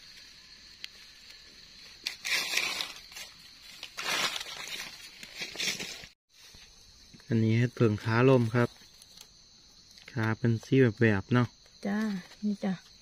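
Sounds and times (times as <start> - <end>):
dry leaves crunching and rustling: 2.1 - 6.2.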